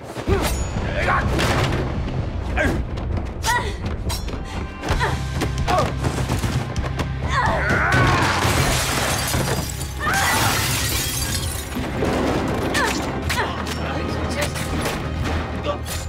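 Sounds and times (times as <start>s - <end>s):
glass shattering crash: 8.0s - 12.7s.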